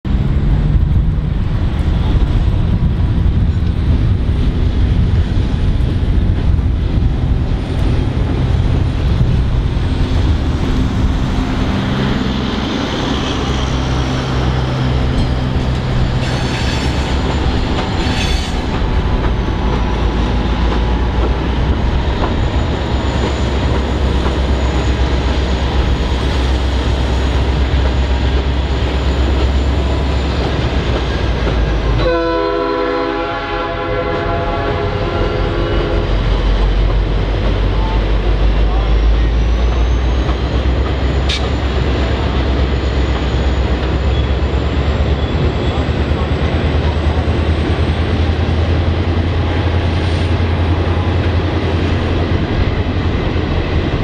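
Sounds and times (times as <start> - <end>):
locomotive diesel engine: 0.0 - 54.0
train wheels rumbling on rails: 0.0 - 54.0
train clicking and clatter: 0.1 - 54.0
high wheel squeal: 16.0 - 18.8, 22.1 - 31.2, 38.6 - 46.1.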